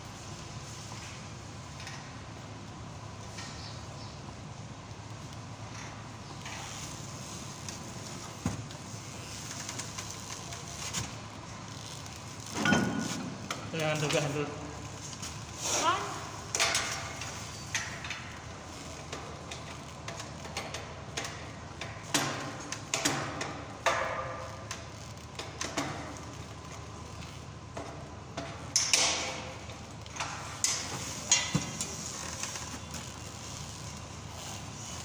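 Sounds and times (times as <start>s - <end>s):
metallic clicks and clanks: 19.0s - 35.0s.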